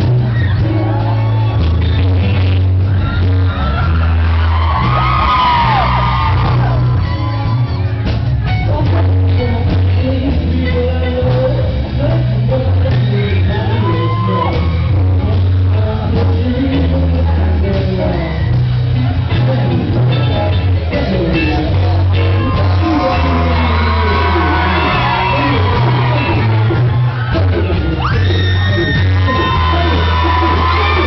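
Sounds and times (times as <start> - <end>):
live rock band playing: 0.0 - 31.0
high shouts: 0.3 - 8.0, 22.0 - 31.0
person singing into microphone: 8.6 - 31.0.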